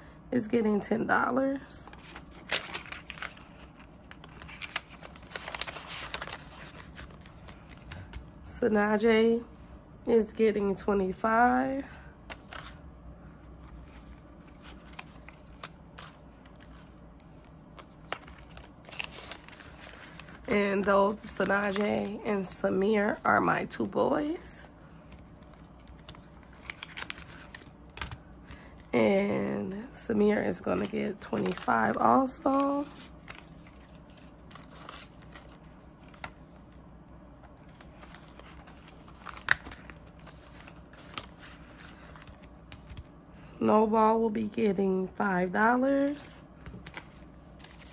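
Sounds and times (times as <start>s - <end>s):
paper banknotes rustling: 1.8s - 8.2s, 13.4s - 23.2s, 25.0s - 29.5s, 30.1s - 36.4s, 37.6s - 43.1s, 45.9s - 47.9s
vinyl pocket crinkling: 1.8s - 8.3s, 13.4s - 22.6s, 25.0s - 29.4s, 30.5s - 36.8s, 37.4s - 43.2s, 46.0s - 47.9s.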